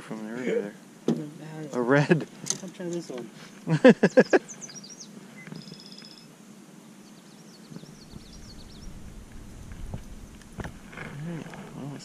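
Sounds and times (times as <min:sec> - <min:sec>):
small birds chirping: 0:01.3 - 0:12.0
low rumble: 0:07.8 - 0:11.8.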